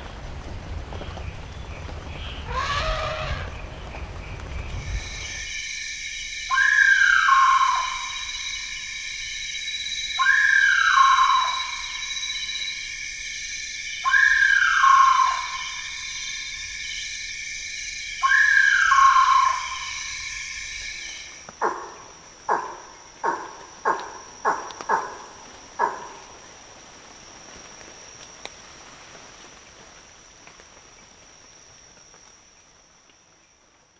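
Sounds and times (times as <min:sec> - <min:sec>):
high-pitched insect trills: 0:01.0 - 0:33.9
scattered ticks: 0:22.5 - 0:26.3.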